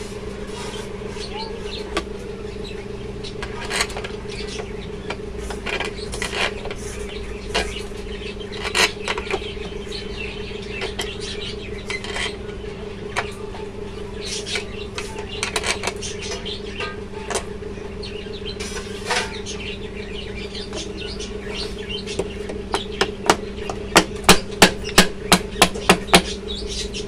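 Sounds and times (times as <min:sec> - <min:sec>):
electrical hum: 0:00.0 - 0:27.0.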